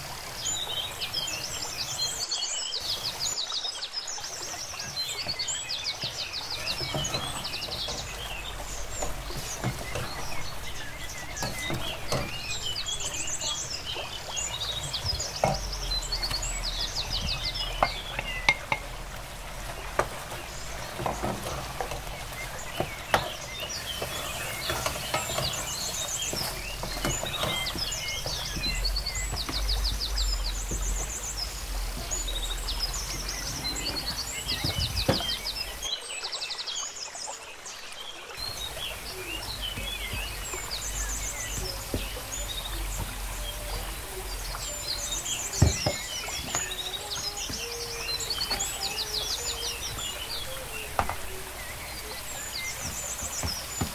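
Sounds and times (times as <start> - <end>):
birds chirping: 0.0 - 53.9
wooden spoon scraping a pot: 19.7 - 29.9.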